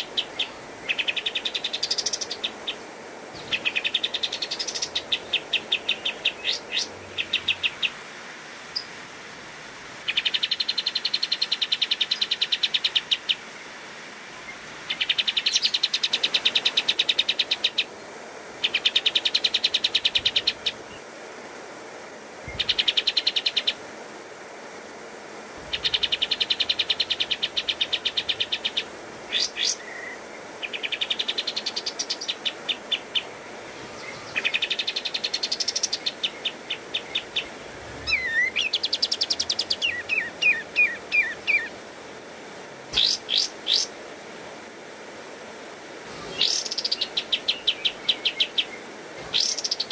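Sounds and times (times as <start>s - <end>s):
bird singing rattling trills: 3.4s - 7.9s, 25.6s - 41.8s, 42.9s - 43.9s, 46.2s - 49.9s
bird whistled notes: 37.9s - 38.7s.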